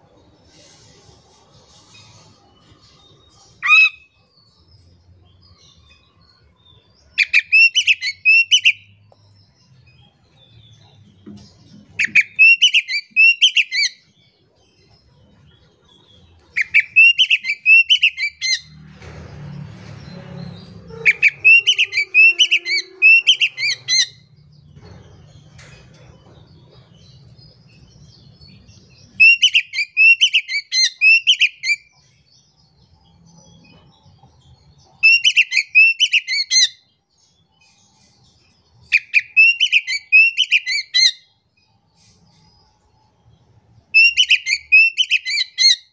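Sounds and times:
bird singing high notes: 20.9 - 24.3.

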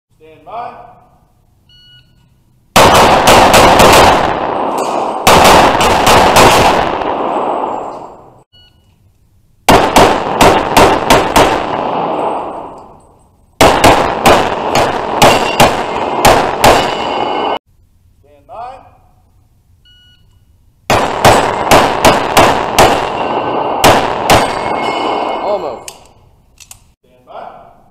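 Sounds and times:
pistol gunshots echoing: 2.8 - 8.3, 9.7 - 13.0, 13.6 - 17.6, 20.9 - 25.9.

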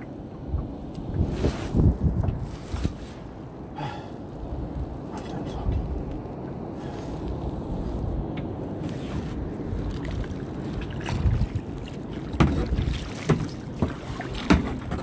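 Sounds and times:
wind rumble on microphone: 0.0 - 15.0
paddle knocks and splashes: 9.9 - 15.0.

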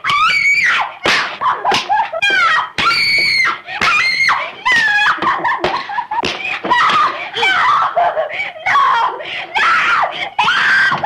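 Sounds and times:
sharp slaps: 1.0 - 7.2
woman screaming: 6.6 - 11.0.

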